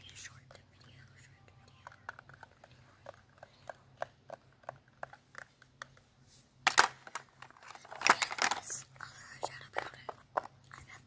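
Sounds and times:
fingers tapping on a small box: 0:09.3 - 0:10.7.

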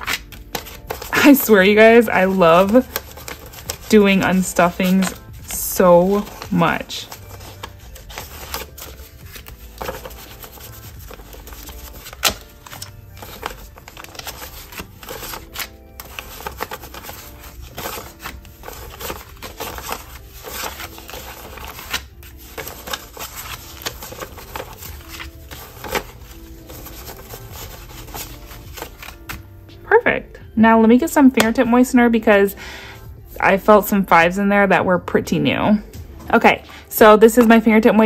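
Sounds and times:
paper snap: 0:00.0 - 0:01.1
banknotes and envelopes rustling: 0:00.0 - 0:29.8, 0:36.1 - 0:38.0
soft background music: 0:00.0 - 0:38.0.

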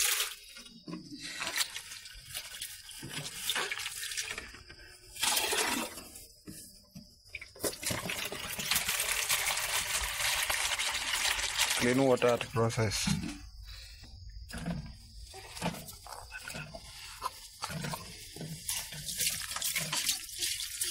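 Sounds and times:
water pouring from jerrycan: 0:00.0 - 0:06.2, 0:07.4 - 0:13.3, 0:16.9 - 0:20.9
water splashing in plastic basin: 0:00.0 - 0:06.2, 0:07.4 - 0:13.3, 0:17.8 - 0:20.9.

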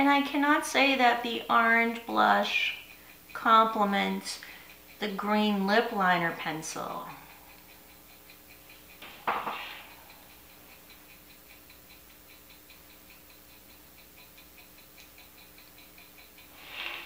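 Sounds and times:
faint regular ticking: 0:00.0 - 0:17.0
breathy rush of noise: 0:16.6 - 0:17.0.

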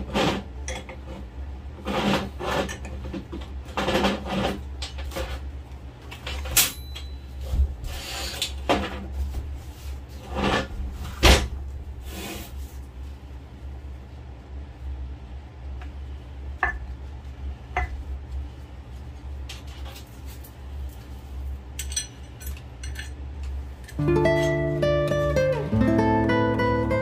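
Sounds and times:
low steady hum: 0:00.0 - 0:27.0
wrench clinking on metal: 0:06.5 - 0:07.2.

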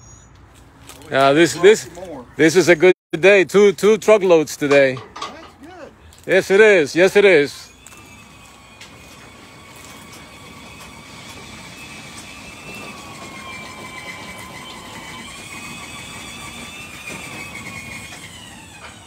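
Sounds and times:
hydraulic system whine: 0:07.3 - 0:19.0.

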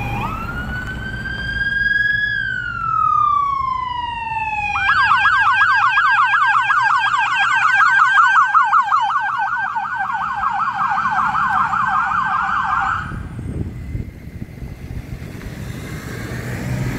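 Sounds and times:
electronic siren yelping: 0:00.0 - 0:13.3
passing traffic: 0:00.0 - 0:16.9.

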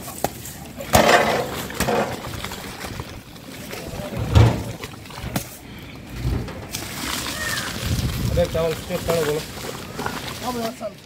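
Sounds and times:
boiling water sloshing: 0:00.0 - 0:11.0
dull thump: 0:04.2 - 0:04.8.

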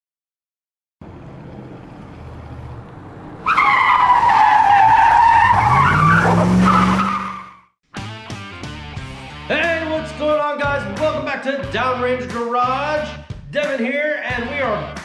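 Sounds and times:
car engine revving: 0:01.0 - 0:07.5
tire screech: 0:01.0 - 0:07.7.

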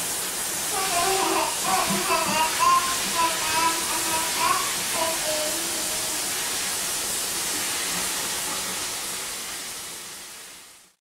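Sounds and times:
shower water running: 0:00.0 - 0:11.0.

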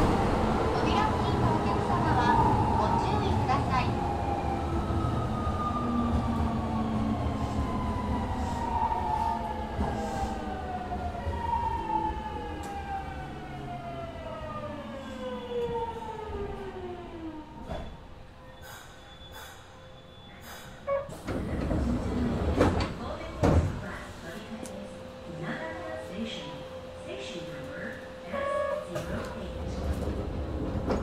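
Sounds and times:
rumble of train wheels: 0:00.0 - 0:31.0
click: 0:24.6 - 0:24.8.

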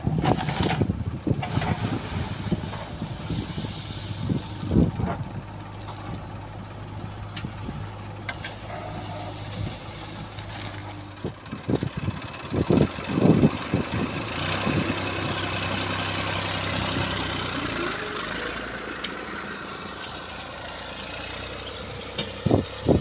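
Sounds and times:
diesel engine running: 0:00.0 - 0:23.0
hiss: 0:01.8 - 0:04.9, 0:08.4 - 0:10.5.

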